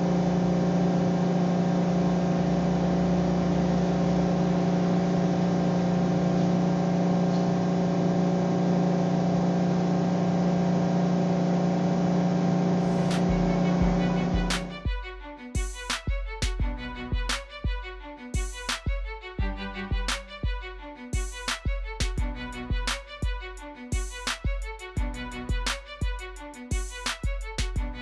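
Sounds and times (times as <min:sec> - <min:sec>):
violin music: 0:12.8 - 0:28.0.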